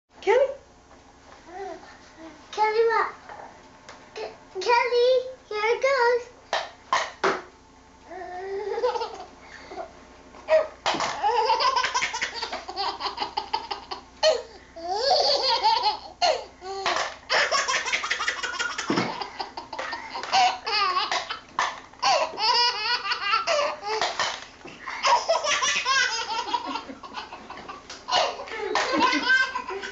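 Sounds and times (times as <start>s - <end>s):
baby laughing: 8.4s - 9.3s, 10.5s - 21.4s, 22.0s - 24.1s, 24.9s - 29.9s.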